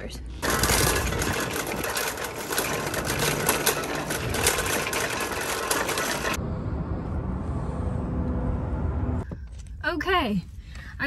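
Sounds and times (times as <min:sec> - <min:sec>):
shopping cart rattling on asphalt: 0:00.4 - 0:06.4.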